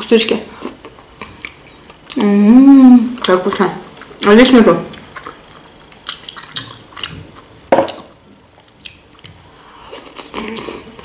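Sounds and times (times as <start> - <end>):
chewing with wet mouth noises: 4.9 - 11.0.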